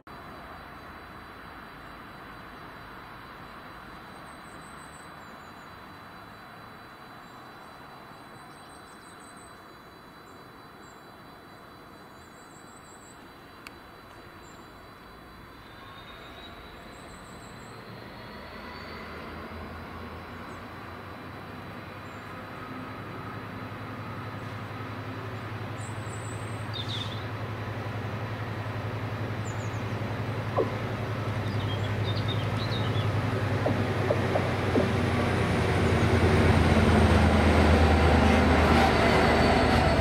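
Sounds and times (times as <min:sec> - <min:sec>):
diesel locomotive engine: 0:13.6 - 0:40.0
rising whine: 0:30.0 - 0:40.0
train wheel noise: 0:30.1 - 0:40.0.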